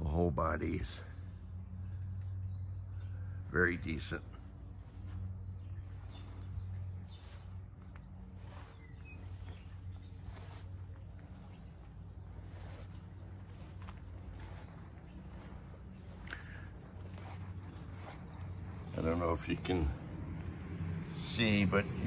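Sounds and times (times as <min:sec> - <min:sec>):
small birds chirping: 0:00.0 - 0:22.0
steady low hum: 0:00.0 - 0:22.0.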